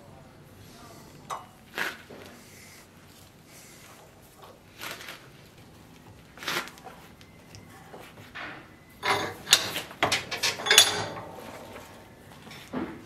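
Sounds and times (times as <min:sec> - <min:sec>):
metal tools scraping and clicking: 0:08.4 - 0:11.4.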